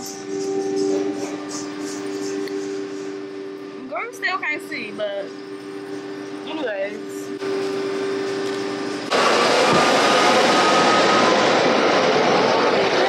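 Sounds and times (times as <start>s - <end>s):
car wash machinery hum: 0.0s - 13.0s
steady rushing noise: 9.0s - 13.0s.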